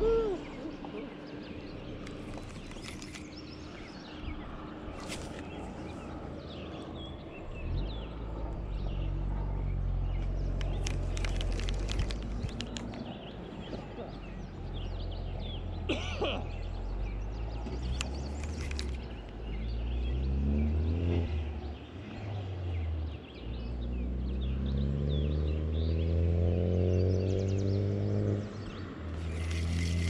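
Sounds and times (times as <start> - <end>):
birds chirping: 0.0 - 30.0
vehicle engine accelerating: 5.1 - 13.2, 16.6 - 30.0.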